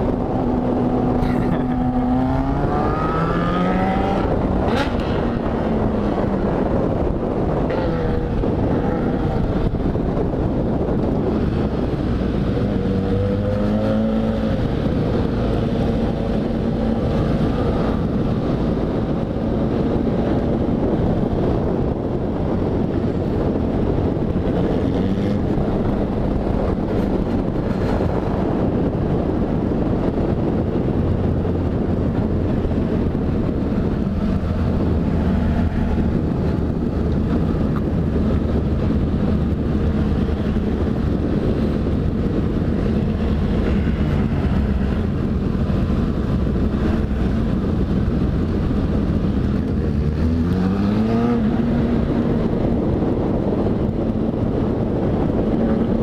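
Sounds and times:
motorcycle engine accelerating: 0.0 - 56.0
wind rushing over microphone: 0.0 - 56.0.

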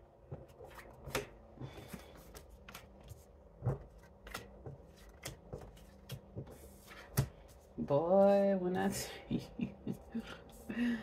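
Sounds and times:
cards being shuffled: 0.3 - 7.6.

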